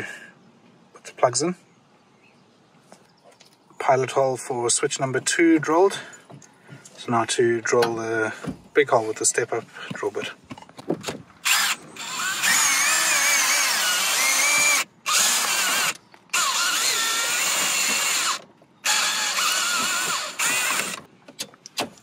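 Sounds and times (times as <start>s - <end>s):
cordless drill squealing through plastic: 11.4s - 21.1s.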